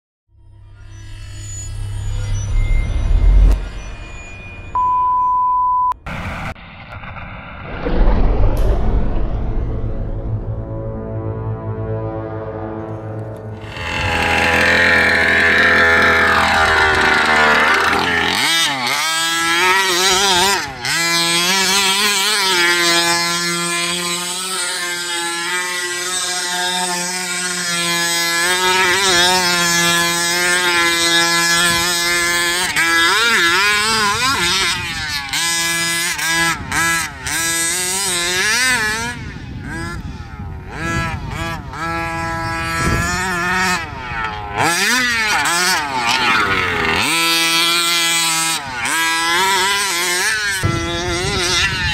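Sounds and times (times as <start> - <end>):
small two-stroke engine revving: 13.5 - 51.9.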